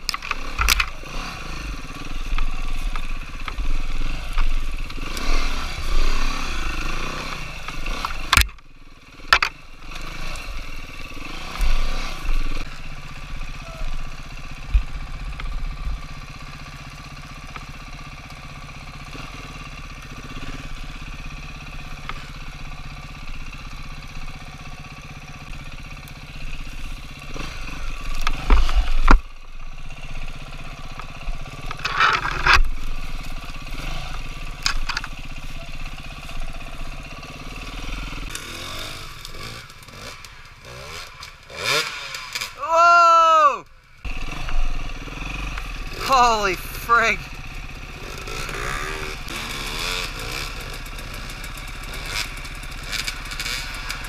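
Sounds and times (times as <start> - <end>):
dirt bike engine revving: 0.0 - 54.0.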